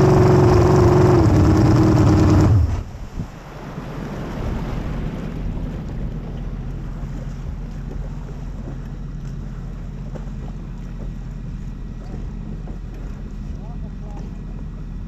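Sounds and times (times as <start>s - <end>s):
wind buffeting microphone: 0.0s - 8.7s
boat engine idling: 0.0s - 15.0s
water washing at hull: 0.0s - 15.0s.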